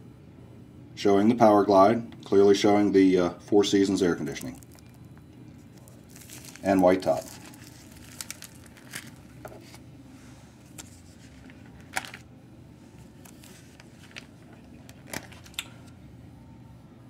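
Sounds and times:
low steady hum: 0.0s - 17.0s
plastic sheet protectors crinkling: 4.2s - 5.0s, 5.7s - 9.8s, 10.6s - 12.2s, 13.0s - 15.7s.

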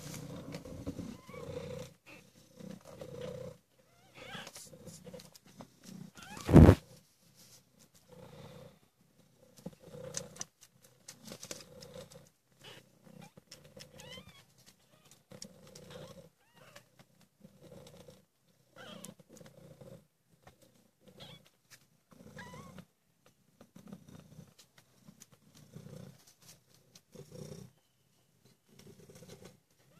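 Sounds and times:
cat purring: 0.0s - 29.9s
kittens squeaking: 1.0s - 2.2s, 3.9s - 4.5s, 6.1s - 6.8s, 18.8s - 19.1s, 21.2s - 21.5s.

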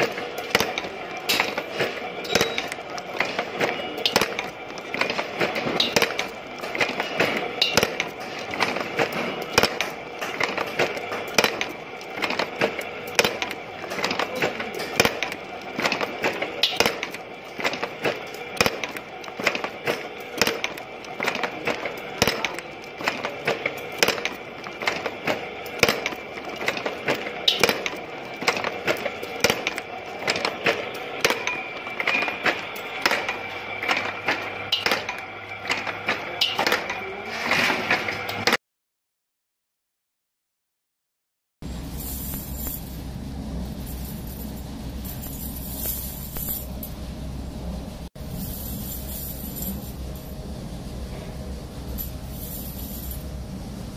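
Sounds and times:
steady machine tone: 0.0s - 37.3s
wire-forming machine metallic clacks: 0.0s - 38.6s, 41.6s - 47.2s, 48.2s - 53.9s.

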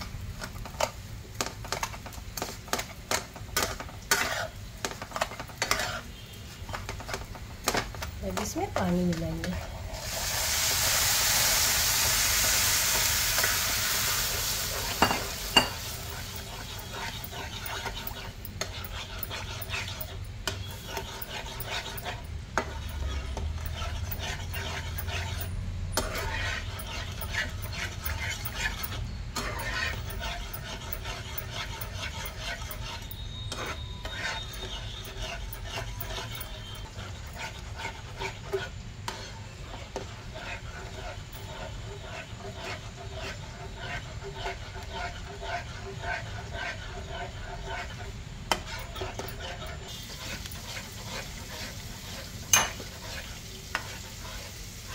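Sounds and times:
spatula stirring and scraping: 0.0s - 54.9s
water sizzling in hot pan: 9.7s - 18.6s, 49.8s - 54.9s.

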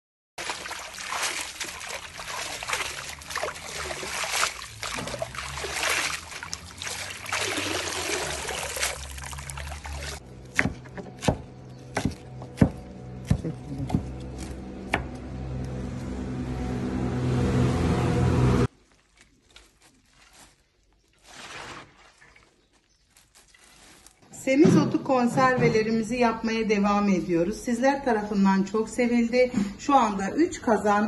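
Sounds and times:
water pouring over leaves: 0.4s - 10.2s
knife chopping on plastic board: 10.5s - 15.1s.

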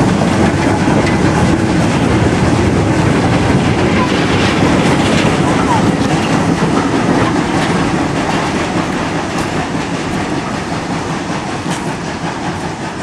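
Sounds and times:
train wheels clattering over rail joints: 0.0s - 13.0s.

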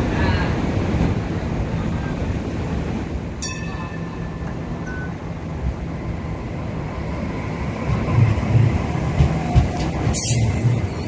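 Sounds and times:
light rail train passing: 0.0s - 11.0s
heavy low thumps of train cars: 7.7s - 11.0s.

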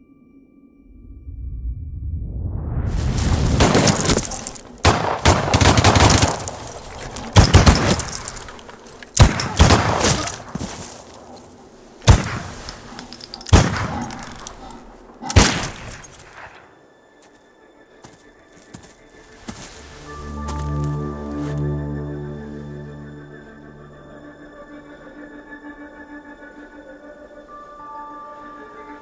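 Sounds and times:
sharp rifle shots ringing: 3.6s - 8.6s, 9.2s - 10.5s, 12.0s - 14.4s, 15.2s - 16.6s
rifle gunfire bursts: 4.8s - 6.6s.

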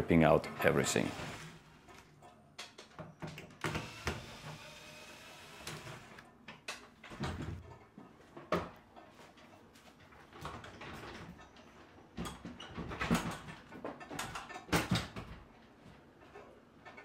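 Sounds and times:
wooden knocks and clatters: 6.5s - 15.7s.

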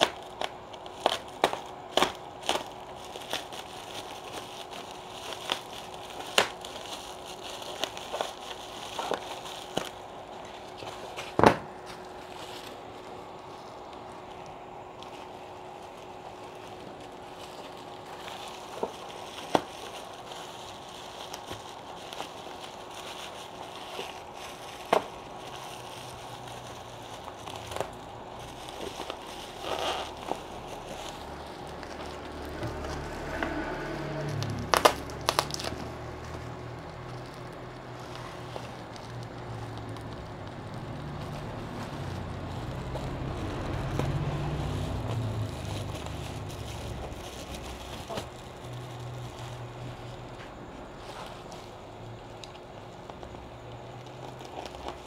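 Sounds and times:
bubble wrap crinkling: 0.0s - 55.0s
low rumble: 28.1s - 51.9s.

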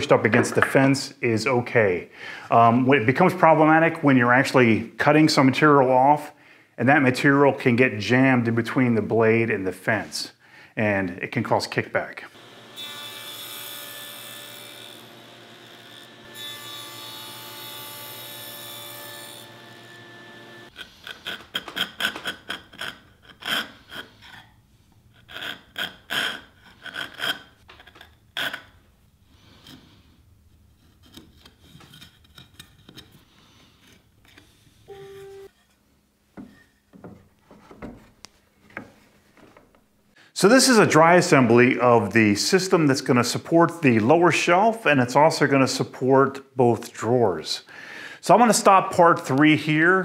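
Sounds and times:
table saw running: 12.3s - 20.8s
chisel scraping wood: 20.7s - 24.5s, 25.2s - 34.8s.

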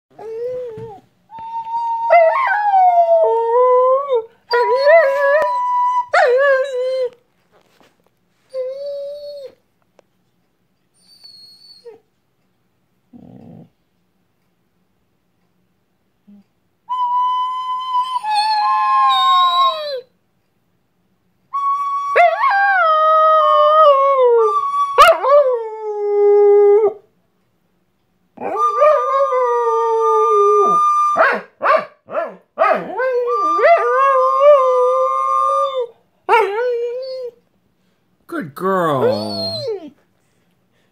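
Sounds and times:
dog howling: 39.0s - 39.9s.

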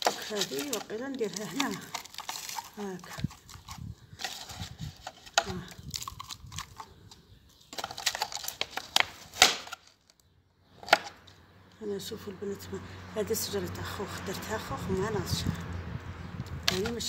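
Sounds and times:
soil scraping: 0.0s - 10.0s, 16.5s - 17.0s
plastic pot crinkling: 0.0s - 11.1s, 16.5s - 17.0s.

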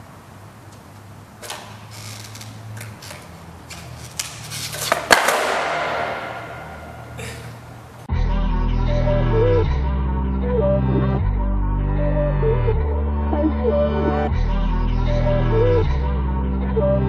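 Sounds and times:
skateboard clicks and knocks: 2.8s - 6.9s
skateboard landing clack: 4.2s - 7.2s.

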